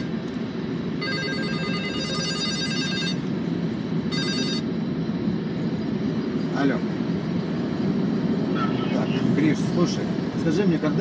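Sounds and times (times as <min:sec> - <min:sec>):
low rumble of passing train: 0:00.0 - 0:11.0
phone ringtone ringing: 0:01.0 - 0:03.2, 0:04.1 - 0:04.7.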